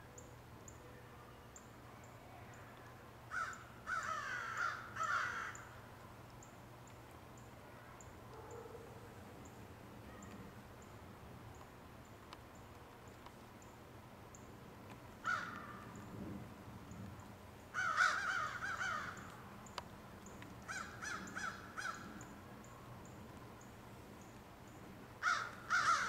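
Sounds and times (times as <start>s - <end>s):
crow cawing: 3.3s - 5.7s, 15.2s - 16.0s, 17.7s - 19.3s, 20.7s - 22.3s, 25.2s - 26.0s.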